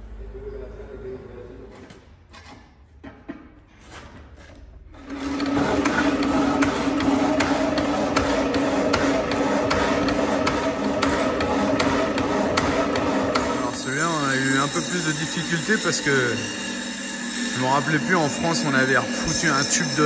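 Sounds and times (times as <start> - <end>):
power tool cutting metal tube: 5.0 - 20.0.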